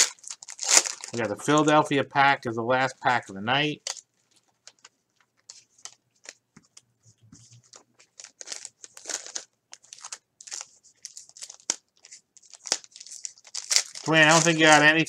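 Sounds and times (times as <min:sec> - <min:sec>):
foil wrappers crinkling and tearing: 0:00.0 - 0:01.9, 0:03.8 - 0:06.4, 0:07.6 - 0:15.0.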